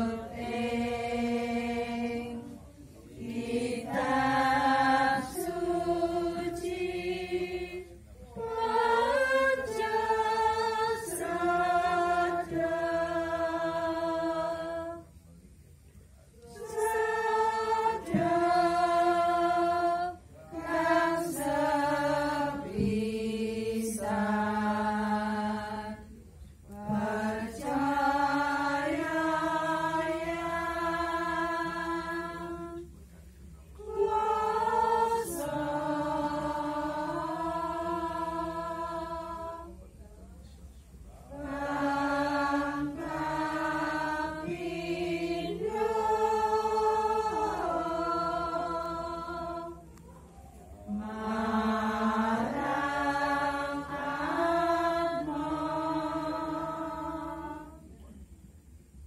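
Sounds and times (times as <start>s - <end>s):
slow devotional chanting: 0.0s - 59.0s.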